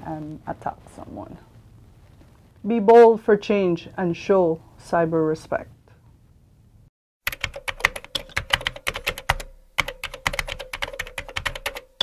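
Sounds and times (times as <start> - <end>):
rapid typing on keyboard: 7.3 - 12.0.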